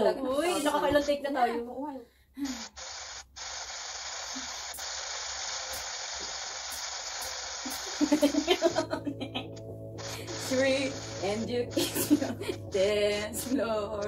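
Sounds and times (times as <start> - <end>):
static hiss: 2.4 - 8.9, 10.0 - 14.0.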